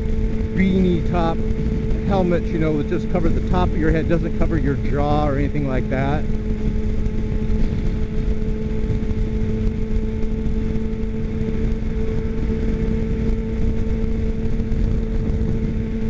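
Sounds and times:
motorcycle engine cruising: 0:00.0 - 0:16.0
wind rushing on microphone: 0:00.0 - 0:16.0.

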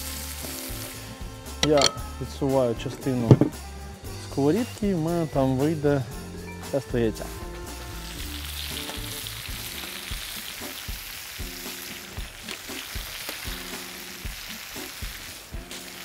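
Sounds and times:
vegetables sizzling in a frying pan: 0:00.0 - 0:01.6, 0:07.2 - 0:16.0
background music with held chords: 0:00.0 - 0:16.0.

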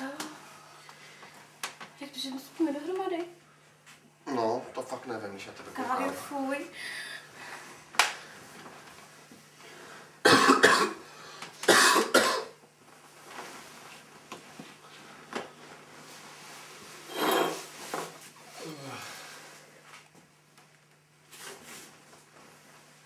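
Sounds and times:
faint steady hum: 0:00.0 - 0:23.0
person coughing hard: 0:10.2 - 0:11.0, 0:11.7 - 0:12.6.

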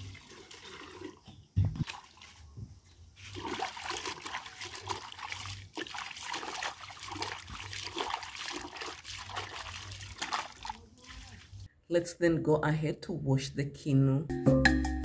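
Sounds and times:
water sloshing in wooden mortar: 0:00.0 - 0:11.7.

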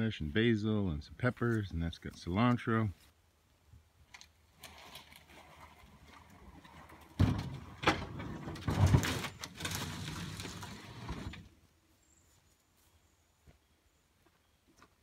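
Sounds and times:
refrigerator scraping down a ramp: 0:04.7 - 0:11.5.

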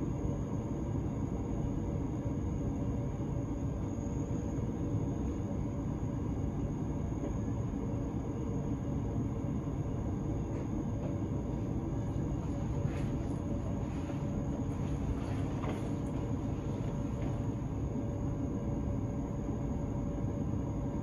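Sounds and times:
train interior rumble and hum: 0:10.2 - 0:18.6.

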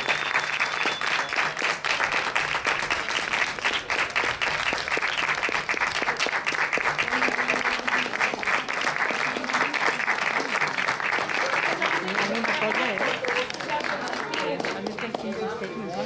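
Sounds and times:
crowd applauding: 0:00.0 - 0:16.0.

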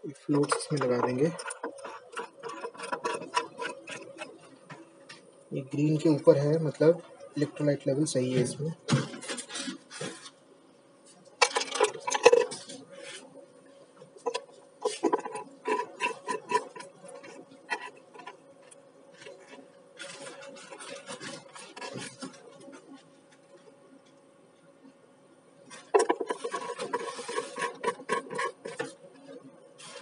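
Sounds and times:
plastic caps clicking and scraping: 0:00.3 - 0:04.4, 0:11.4 - 0:12.8, 0:14.2 - 0:23.0, 0:25.7 - 0:29.0.

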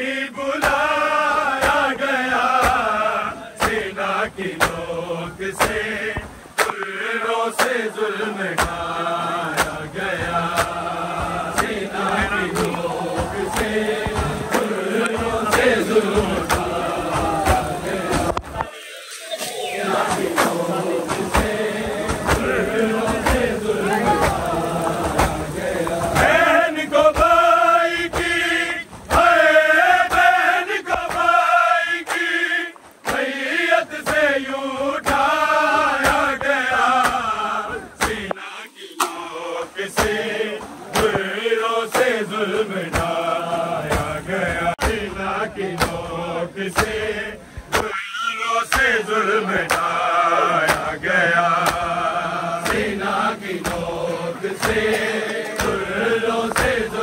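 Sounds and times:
men chanting together: 0:00.0 - 0:18.8, 0:19.6 - 0:57.0
hands slapping chests: 0:00.6 - 0:00.9, 0:01.6 - 0:01.9, 0:02.6 - 0:02.9, 0:03.6 - 0:03.9, 0:04.5 - 0:04.8, 0:05.6 - 0:07.0, 0:07.6 - 0:07.9, 0:08.5 - 0:08.9, 0:09.5 - 0:18.7, 0:20.0 - 0:26.4, 0:30.9 - 0:31.3, 0:32.0 - 0:33.3, 0:35.0 - 0:35.3, 0:36.0 - 0:37.3, 0:40.9 - 0:41.3, 0:42.9 - 0:43.2, 0:43.9 - 0:44.2, 0:44.8 - 0:45.1, 0:45.7 - 0:46.0, 0:46.7 - 0:47.0, 0:47.6 - 0:48.0, 0:48.7 - 0:50.0, 0:50.6 - 0:51.9, 0:54.6 - 0:55.9, 0:56.5 - 0:56.9.

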